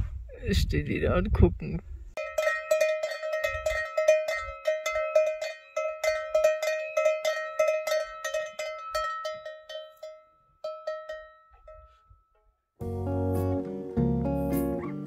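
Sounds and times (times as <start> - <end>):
cow bell clanging: 2.2 - 12.5.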